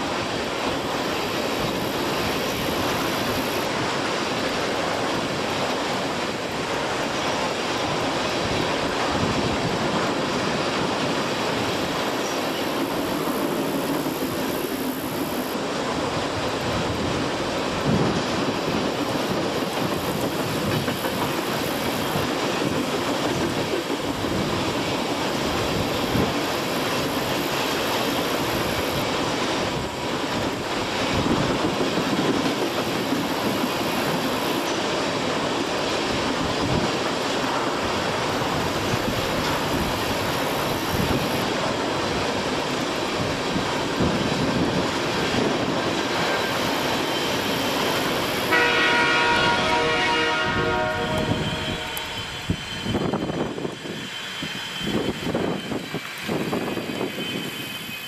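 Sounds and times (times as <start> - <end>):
freight train rumbling past: 0.0 - 58.0
locomotive horn: 48.5 - 52.6.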